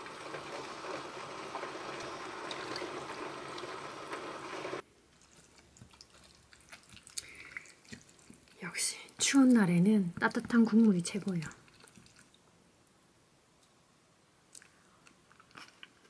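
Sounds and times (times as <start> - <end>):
soup pouring and splashing: 0.0 - 8.6, 11.3 - 12.5.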